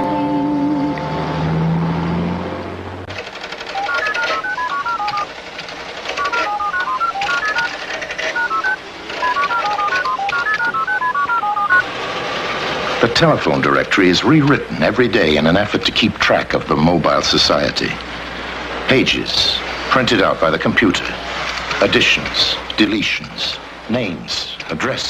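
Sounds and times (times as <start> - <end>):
steady clicking chatter: 3.1 - 11.8
rapid electronic beeps: 3.7 - 5.3, 6.2 - 11.8.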